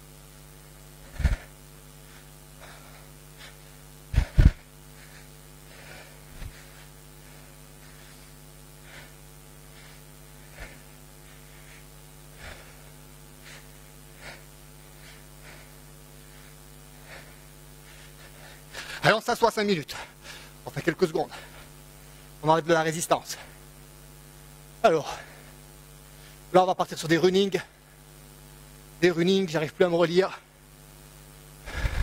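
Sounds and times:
steady low hum: 0.0 - 32.0
man breathing hard: 1.0 - 19.2, 19.9 - 20.6, 21.2 - 22.4, 31.6 - 32.0.

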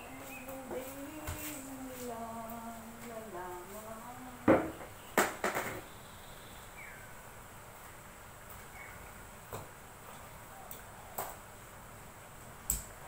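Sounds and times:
loud knocks: 4.5 - 5.8.

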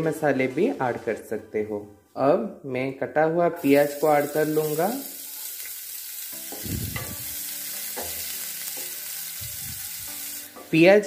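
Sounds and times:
onions sizzling in hot oil: 3.6 - 11.0.

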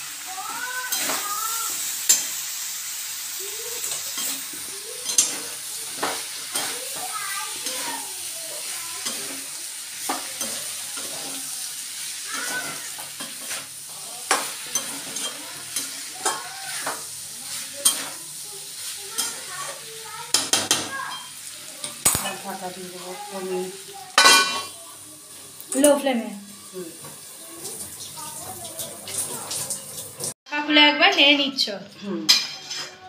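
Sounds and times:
frying sizzle: 0.0 - 33.0
spatula scraping metal pan: 3.8 - 19.8.

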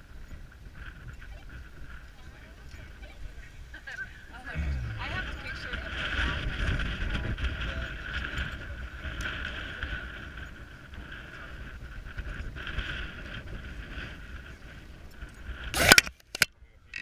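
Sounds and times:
wind rumbling on microphone: 0.0 - 15.9.

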